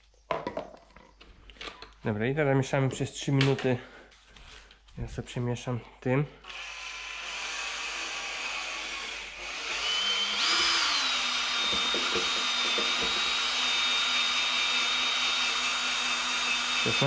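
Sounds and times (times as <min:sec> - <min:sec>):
electric drill mixing: 0:06.4 - 0:17.0.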